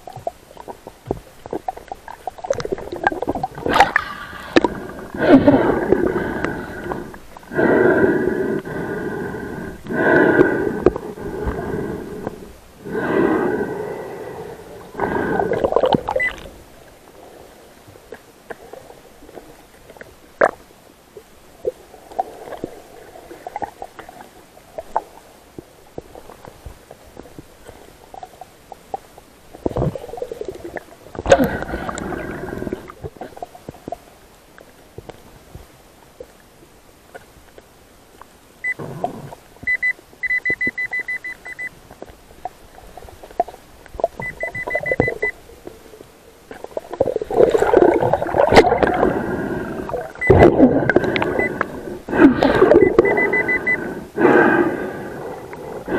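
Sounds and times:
muffled underwater rushing: 0.0 - 17.4, 42.6 - 55.9
metal detector pulsing beep: 39.7 - 41.7, 44.2 - 45.4, 52.7 - 53.8.

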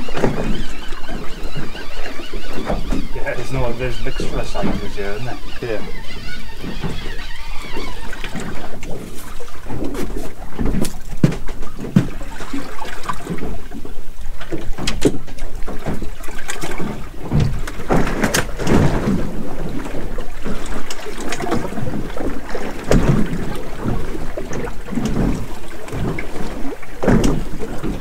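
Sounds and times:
waves slapping boat hull: 0.0 - 28.0
knocks on boat hull: 9.8 - 12.2.

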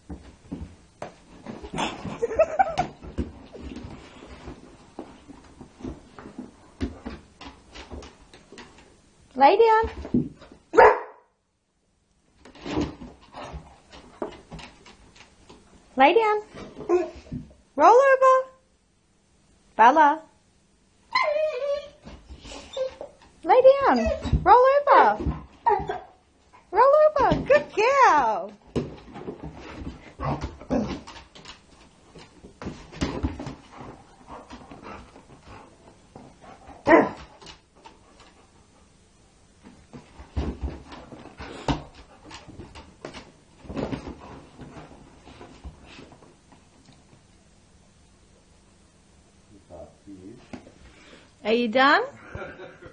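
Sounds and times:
dog barking: 10.8 - 11.3, 36.9 - 37.2
dog whining: 21.1 - 23.1, 25.6 - 26.2.

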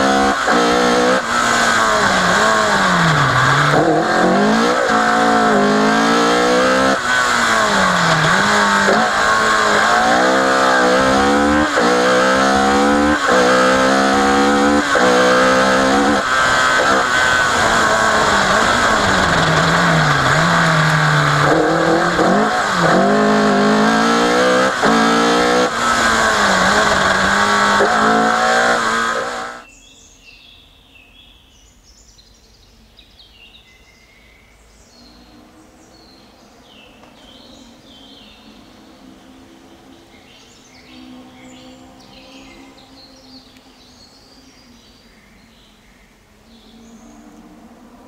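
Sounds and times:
rally car engine revving hard: 0.0 - 29.6
faint engine: 0.0 - 29.7
birds chirping: 0.0 - 47.3.

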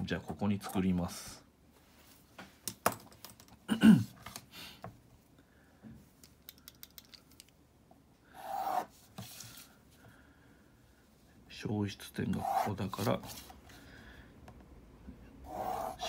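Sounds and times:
ruler scraping on desk: 8.4 - 9.4, 12.4 - 13.5, 15.4 - 16.0
pencil scratching on paper: 8.4 - 9.6, 12.3 - 13.5, 15.4 - 16.0.

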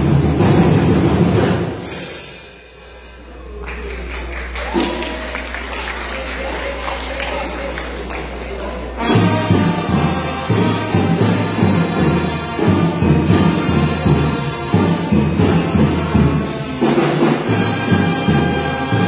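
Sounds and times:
trumpets playing tune: 8.9 - 19.0
drum beat: 9.0 - 19.0.

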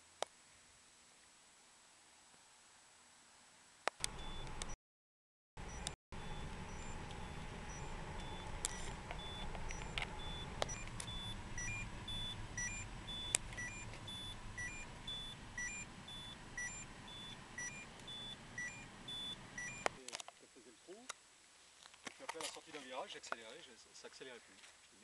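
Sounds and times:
seatbelt reminder chime beeping: 4.0 - 4.8, 5.6 - 20.0
low hum of car rolling: 5.6 - 20.0
two-note beep: 5.7 - 19.9.

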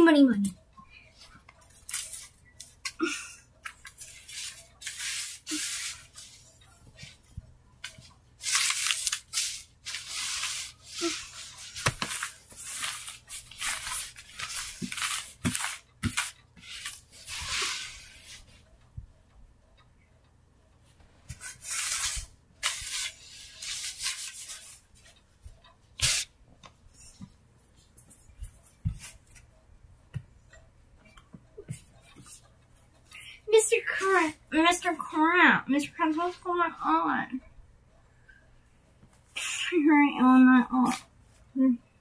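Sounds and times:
paper bills and cards rustling: 1.2 - 3.0, 7.8 - 18.4.

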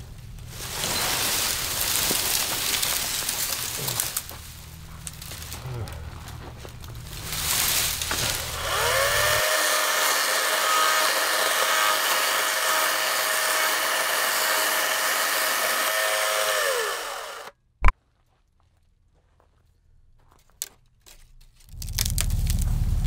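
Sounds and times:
electric chainsaw cutting branch: 7.2 - 17.6, 21.7 - 23.0.

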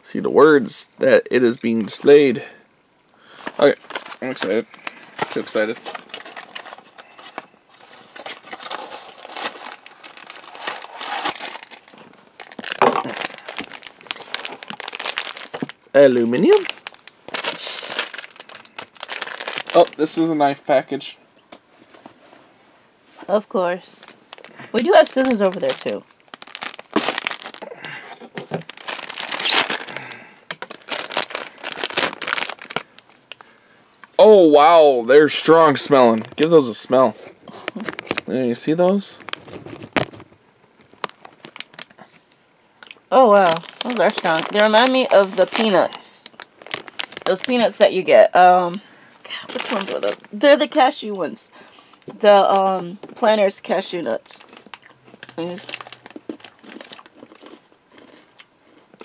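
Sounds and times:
foil wrapper crinkling: 3.4 - 20.3, 24.0 - 33.6, 35.7 - 42.0, 42.8 - 48.1, 48.7 - 50.6, 54.3 - 57.6.

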